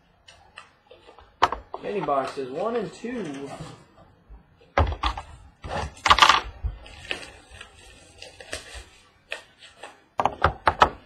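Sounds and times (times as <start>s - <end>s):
cardboard rustling: 4.9s - 10.2s.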